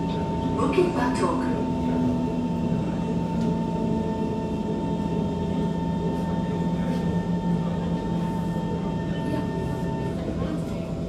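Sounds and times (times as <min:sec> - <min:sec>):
steady train whine: 0:00.0 - 0:11.0.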